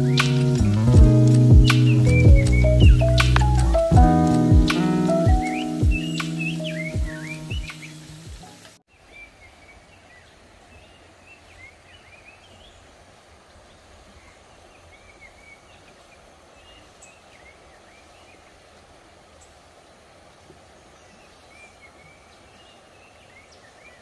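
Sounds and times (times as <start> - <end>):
birds chirping faintly: 0.0 - 18.8
steady background hiss: 0.0 - 24.0.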